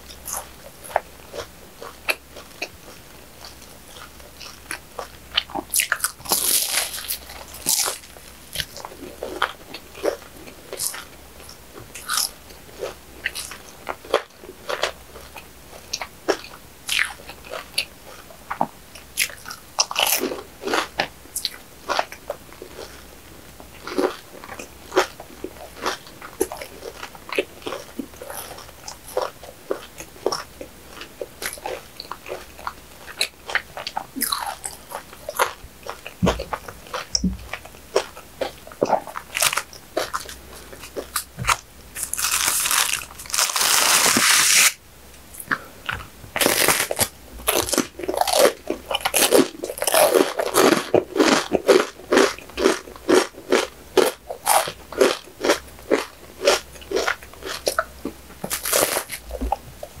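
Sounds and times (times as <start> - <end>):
soft chewing and mouth clicks: 0.0 - 43.3
wrapper rustling: 42.0 - 44.8.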